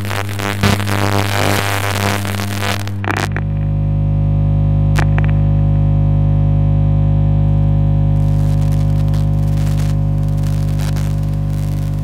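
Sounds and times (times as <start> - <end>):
electrical crackles: 0.0 - 4.0, 4.8 - 5.9, 8.1 - 12.0
high-voltage electrical hum: 0.0 - 12.0.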